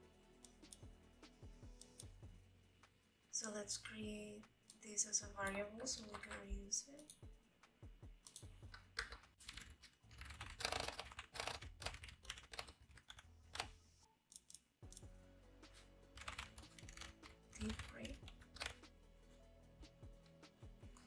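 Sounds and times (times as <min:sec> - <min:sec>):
computer keyboard typing: 0:06.0 - 0:07.2, 0:08.3 - 0:13.7, 0:16.2 - 0:18.9.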